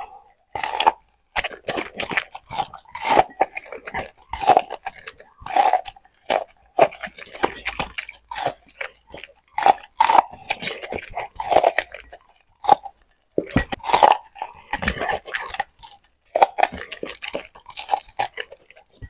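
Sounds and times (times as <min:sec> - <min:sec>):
dog crunching corn cob: 0:00.0 - 0:19.0.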